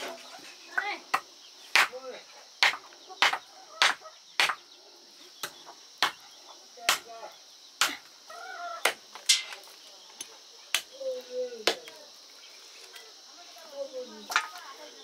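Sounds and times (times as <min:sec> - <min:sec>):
heavy knife chopping meat and bone: 0:01.7 - 0:02.0, 0:02.6 - 0:04.6.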